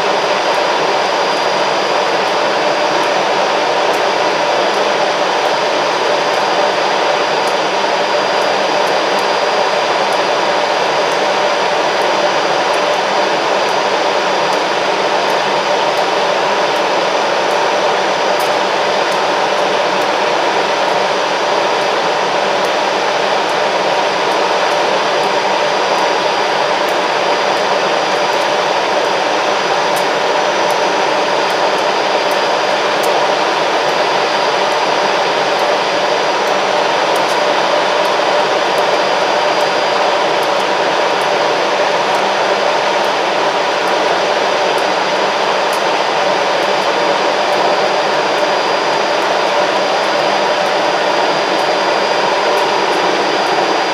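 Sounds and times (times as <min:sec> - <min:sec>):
faint high whine: 0:00.0 - 0:53.9.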